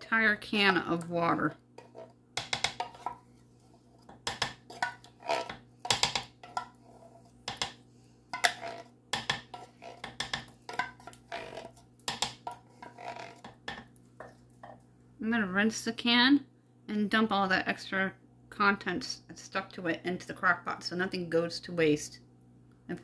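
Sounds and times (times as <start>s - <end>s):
wooden spoon scraping a jar: 1.8s - 7.7s, 8.4s - 14.4s.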